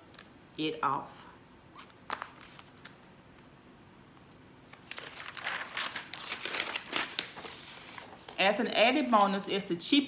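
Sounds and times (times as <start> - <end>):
rustling crinkling handling noise: 1.8 - 3.1, 4.3 - 9.5.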